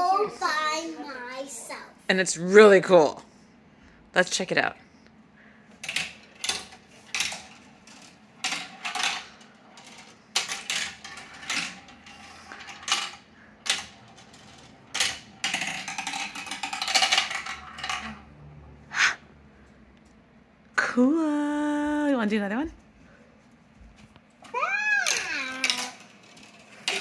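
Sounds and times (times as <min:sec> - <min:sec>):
marble clacking on plastic track: 0:05.8 - 0:18.2, 0:24.5 - 0:27.0
marble rattling: 0:05.8 - 0:18.2, 0:25.0 - 0:27.0.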